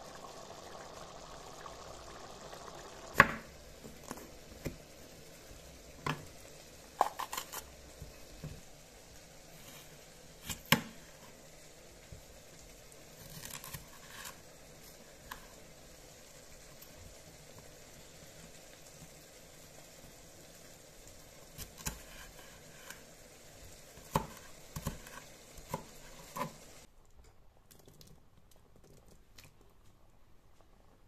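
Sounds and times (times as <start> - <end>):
knife slicing pepper on wooden board: 7.0 - 7.7.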